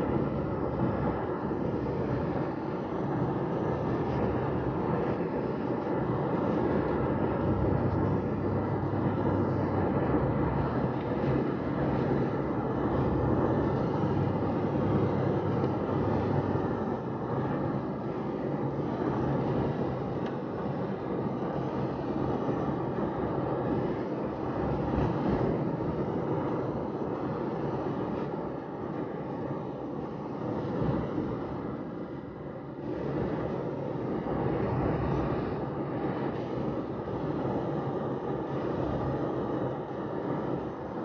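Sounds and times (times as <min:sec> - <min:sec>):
car engine hum: 0:06.9 - 0:17.4.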